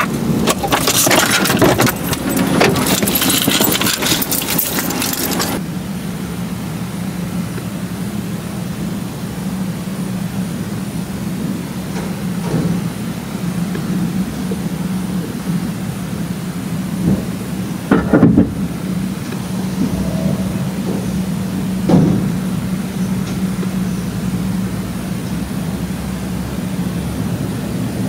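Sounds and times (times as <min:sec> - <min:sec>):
car keys jangling: 0:00.0 - 0:05.6
steady low hum: 0:18.5 - 0:25.8.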